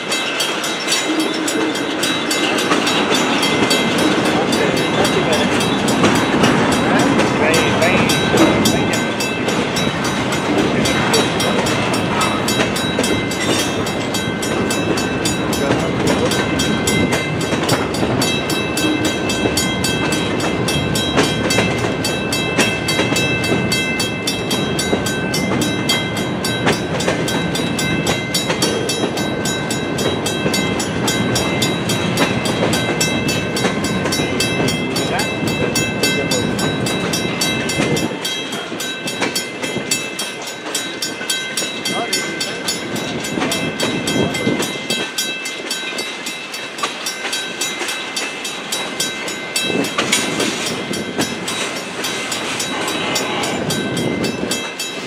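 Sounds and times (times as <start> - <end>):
freight train wheels rumbling: 0.0 - 55.0
level crossing bell ringing: 0.0 - 55.0.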